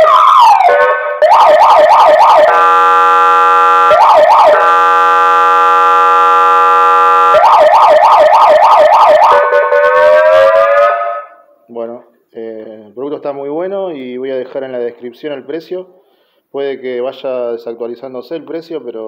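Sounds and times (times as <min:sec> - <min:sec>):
electronic siren wailing and yelping: 0:00.0 - 0:11.5
honking horn tone: 0:02.5 - 0:07.4, 0:09.3 - 0:11.5.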